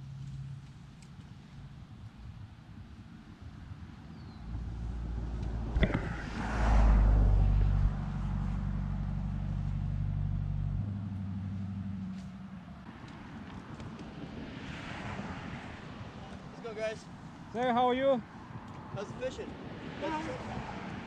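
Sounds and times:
engine humming: 4.3 - 14.2.

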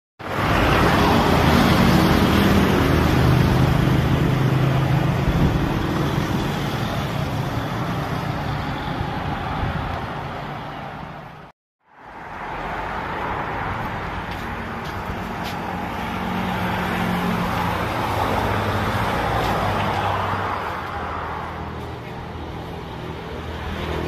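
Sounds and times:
road traffic passing: 0.2 - 24.0
truck passing: 0.2 - 24.0.

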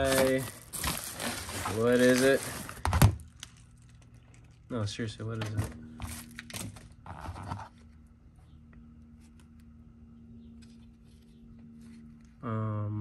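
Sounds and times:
package crinkle: 0.0 - 4.7.

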